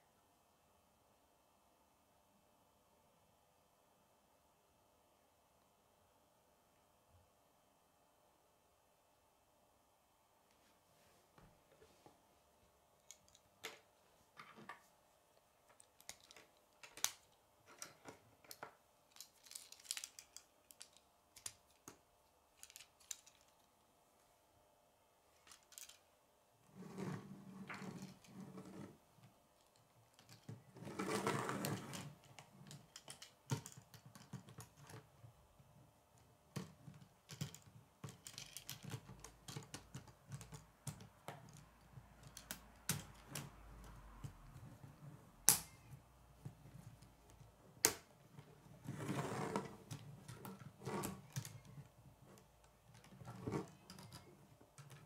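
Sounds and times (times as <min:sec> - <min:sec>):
rustling handling noise: 0:13.0 - 0:24.4
plastic pieces clicking together: 0:15.8 - 0:22.0, 0:22.6 - 0:23.7, 0:32.0 - 0:35.0, 0:36.5 - 0:41.6.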